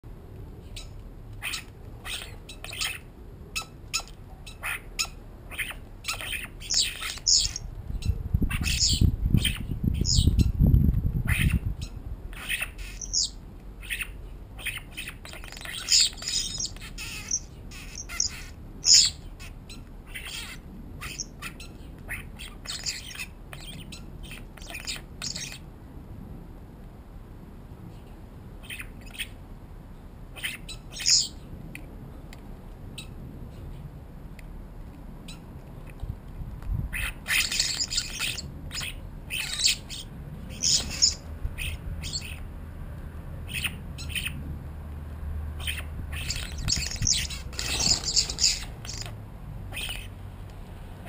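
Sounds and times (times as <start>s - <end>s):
starlings squawking: 0.7s - 10.5s, 11.3s - 25.6s, 30.4s - 31.4s, 37.0s - 42.4s, 45.6s - 49.1s, 49.7s - 50.2s.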